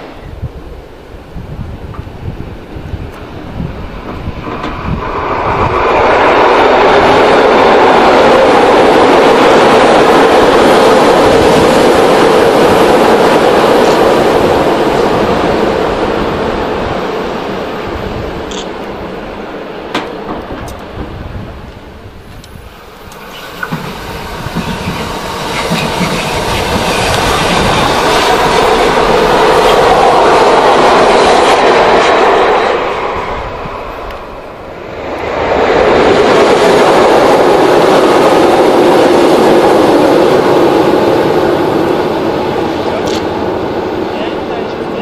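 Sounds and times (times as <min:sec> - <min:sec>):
electric train passing: 0:00.0 - 0:45.0
wheels clattering on rail joints: 0:22.3 - 0:30.0.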